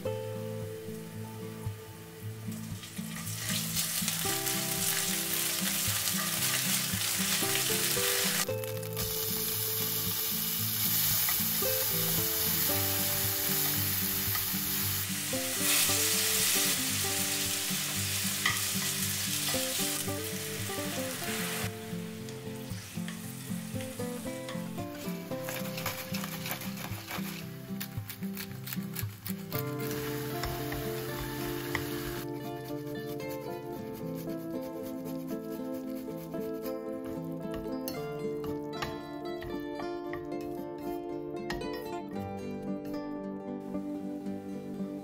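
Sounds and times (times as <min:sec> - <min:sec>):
greens sizzling in oil: 0:02.5 - 0:32.3
wooden spatula stirring: 0:25.3 - 0:27.5, 0:30.7 - 0:37.7.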